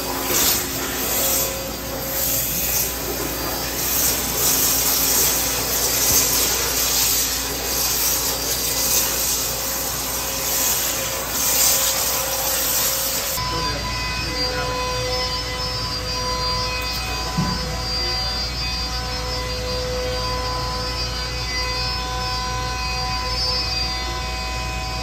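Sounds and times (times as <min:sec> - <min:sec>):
waterjet hissing: 0:00.0 - 0:16.2.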